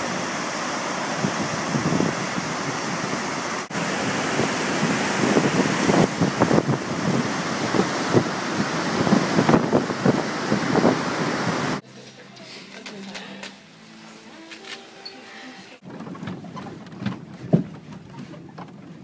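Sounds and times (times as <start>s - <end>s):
waterfall rushing: 0.0s - 11.8s
wind buffeting microphone: 0.0s - 11.8s, 15.8s - 19.0s.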